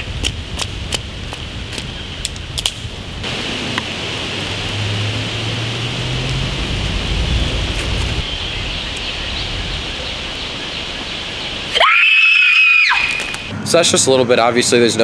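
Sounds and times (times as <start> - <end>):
low rumble: 0.0 - 11.7.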